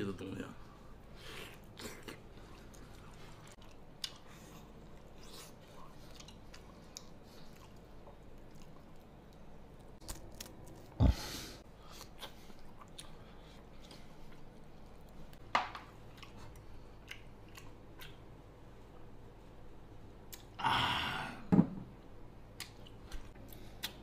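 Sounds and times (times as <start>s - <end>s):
person chewing: 1.3s - 15.1s, 16.0s - 18.3s, 22.6s - 24.0s.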